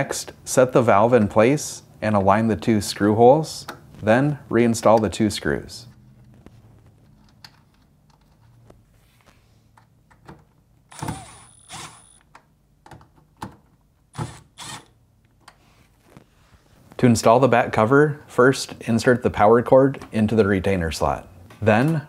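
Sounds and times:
cordless driver whining: 10.9s - 12.2s, 14.2s - 14.9s.

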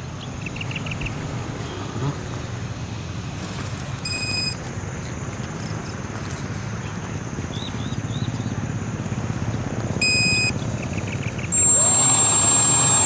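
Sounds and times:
electric motor buzzing: 11.6s - 13.0s
short high chirps: 11.6s - 13.0s
short high tone: 11.6s - 13.0s.

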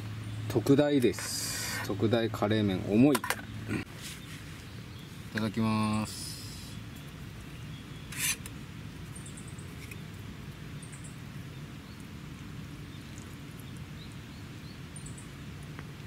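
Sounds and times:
rain falling on tent: 9.8s - 16.0s.

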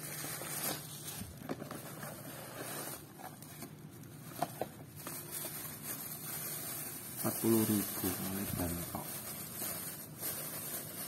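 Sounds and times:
cardboard box rustling and scraping: 0.0s - 3.7s.

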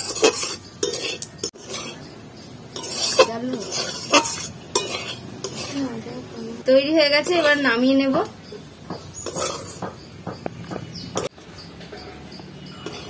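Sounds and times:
metal spatula scraping a pan: 0.0s - 6.3s, 7.1s - 8.2s, 9.0s - 10.1s, 12.8s - 13.0s
light sizzle: 2.7s - 6.7s.

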